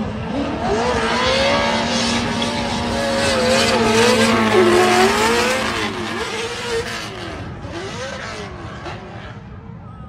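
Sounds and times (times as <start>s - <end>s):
car engines revving: 0.0s - 9.8s.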